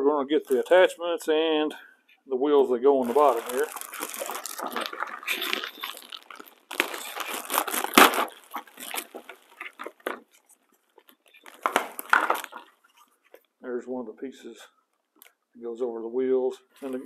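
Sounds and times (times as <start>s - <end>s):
plastic bag crinkling: 3.0s - 13.5s.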